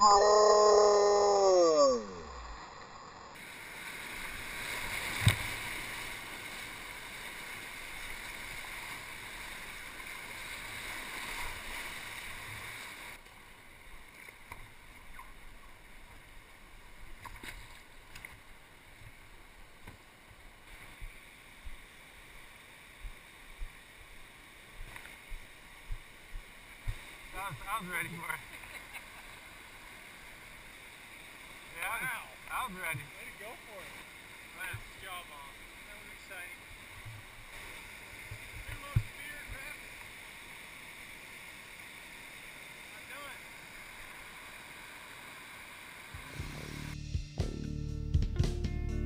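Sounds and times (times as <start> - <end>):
calm water washing: 0.0 - 47.0
whitewater rushing: 31.6 - 47.0.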